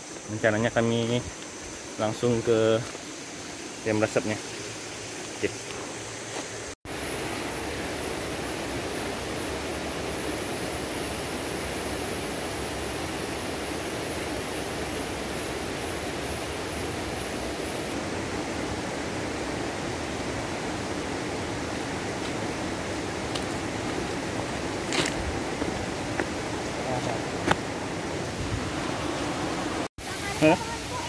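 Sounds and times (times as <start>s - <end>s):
high insect drone: 0.0s - 31.0s
steady rushing hiss: 0.0s - 31.0s.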